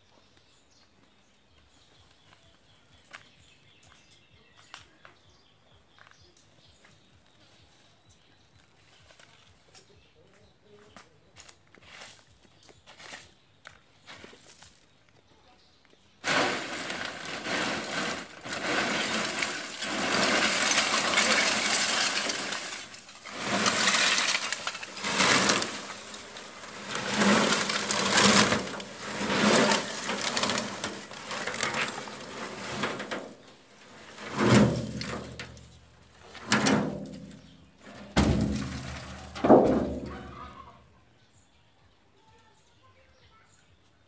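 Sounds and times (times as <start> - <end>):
charcoal clattering and crackling: 16.2 - 40.8.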